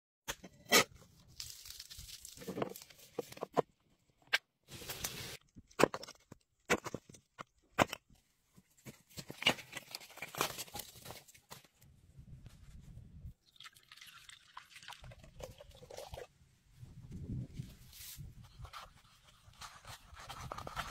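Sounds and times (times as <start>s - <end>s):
liquid pouring into wooden bowl: 13.5s - 16.3s.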